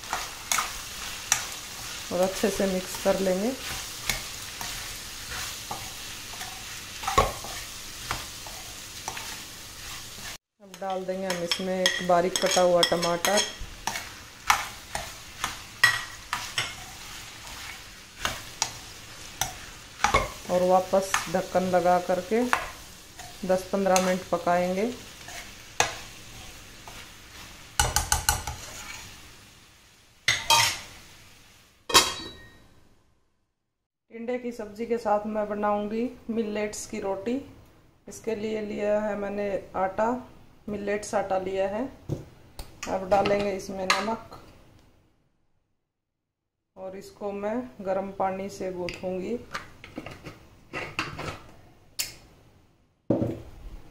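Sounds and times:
spoon scraping a pan: 0:00.0 - 0:29.2, 0:30.3 - 0:31.0, 0:49.5 - 0:51.6
ghee sizzling: 0:00.0 - 0:32.1
spoon and lid knocking on pan: 0:27.8 - 0:28.5.

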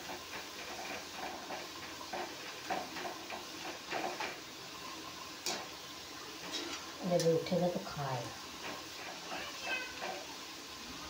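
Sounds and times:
potatoes frying in oil: 0:00.0 - 0:11.0
spoon scraping while stirring: 0:06.4 - 0:07.0.

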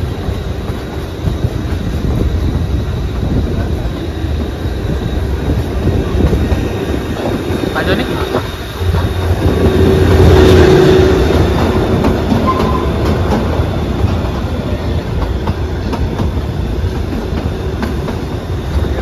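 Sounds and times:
train wheels rumbling on rails: 0:00.0 - 0:19.0
brief steady tone: 0:12.4 - 0:13.0.

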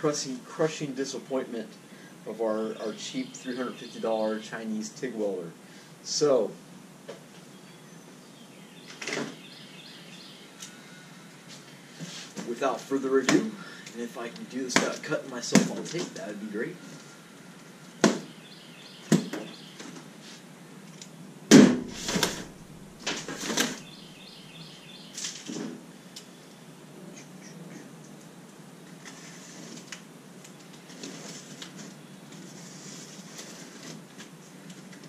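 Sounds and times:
low thud: 0:21.5 - 0:23.9
cardboard rustling: 0:21.6 - 0:23.9.

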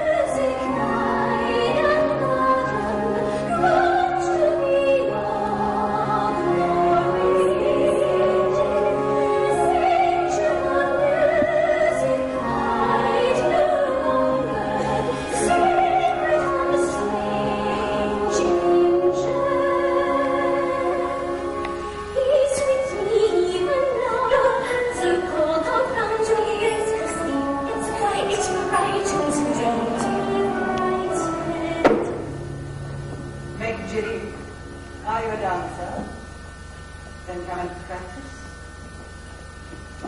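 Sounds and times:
operatic voices singing: 0:00.0 - 0:32.4
orchestra playing: 0:25.0 - 0:35.4.

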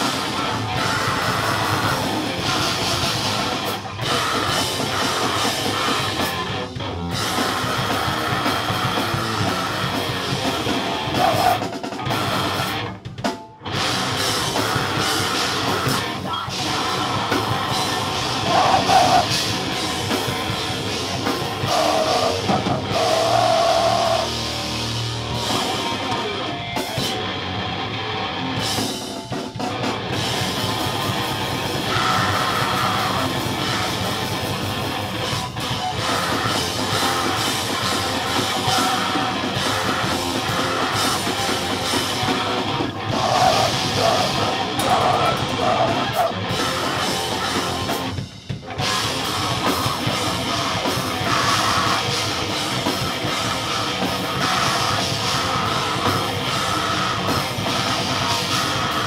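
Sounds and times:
drum kit with crashing cymbals: 0:00.0 - 0:27.2, 0:28.6 - 0:59.0
distorted electric guitar: 0:00.0 - 0:59.0
shouted vocals: 0:14.5 - 0:19.6, 0:21.5 - 0:24.4, 0:31.8 - 0:34.1, 0:42.8 - 0:47.4.

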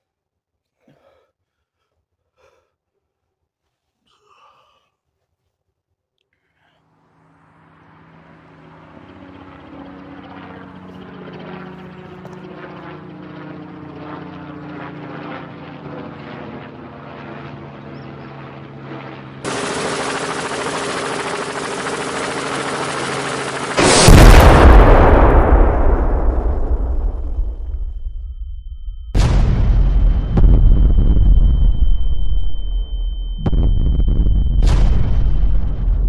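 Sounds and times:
helicopter rotor chop: 0:07.2 - 0:28.0
very loud blast: 0:19.5 - 0:36.0
loud rushing noise: 0:23.2 - 0:27.6.

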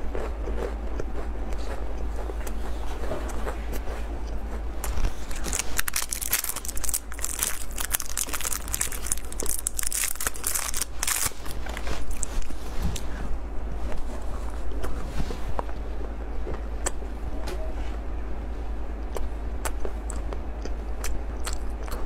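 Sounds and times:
plastic wrapper crinkling: 0:05.1 - 0:12.6.

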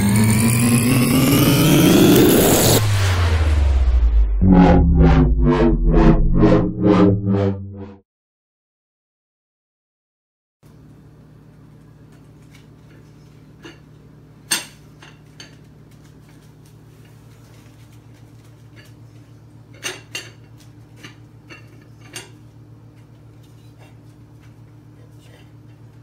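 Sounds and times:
steady low hum: 0:00.0 - 0:08.0.

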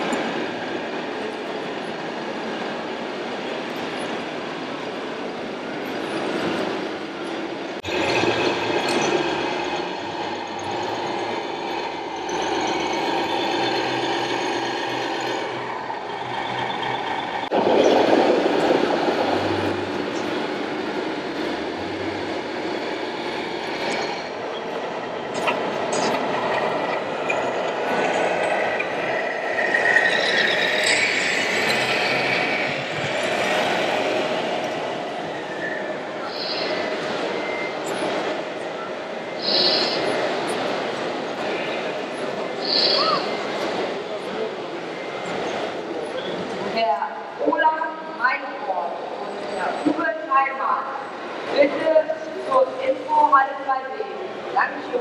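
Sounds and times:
model trucks driving: 0:03.5 - 0:46.8
crowd hubbub: 0:23.2 - 0:50.0.

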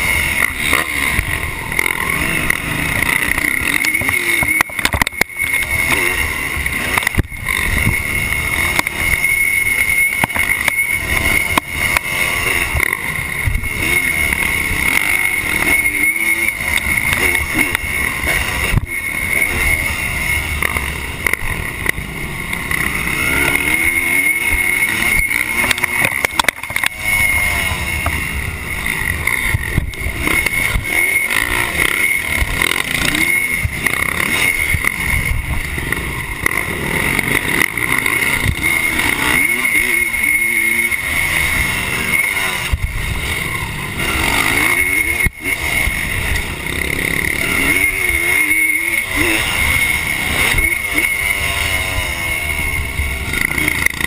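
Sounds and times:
two-stroke engine revving: 0:00.0 - 0:54.0.

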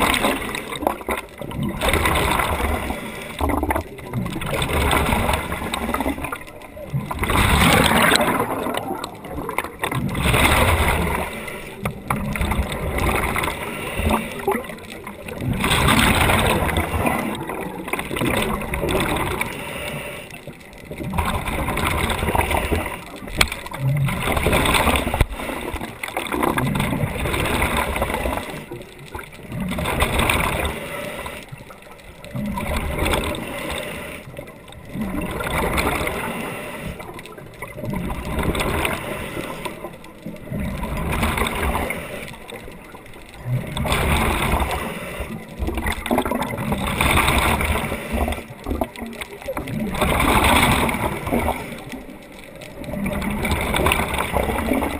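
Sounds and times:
gurgling exhaled bubbles: 0:00.0 - 0:54.9
diver breathing through regulator: 0:19.4 - 0:20.5, 0:30.6 - 0:31.5, 0:33.2 - 0:34.3, 0:36.0 - 0:37.1.

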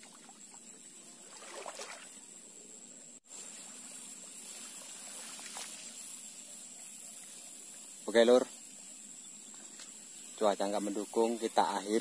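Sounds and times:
outdoor hiss: 0:00.0 - 0:12.0
grass rustling: 0:03.2 - 0:12.0.

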